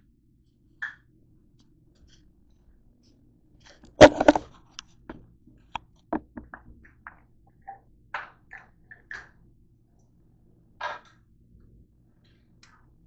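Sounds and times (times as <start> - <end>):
camera knocking on counter: 4.0 - 4.4, 6.2 - 6.7.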